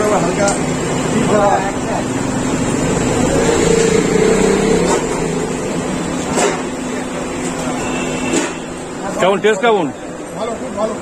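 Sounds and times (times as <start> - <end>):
vehicle engine running: 0.0 - 7.3.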